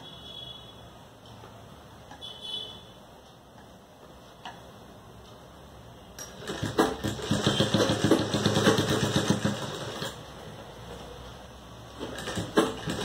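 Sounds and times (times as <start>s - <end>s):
sewing machine stitching: 6.2s - 10.2s, 12.0s - 13.0s.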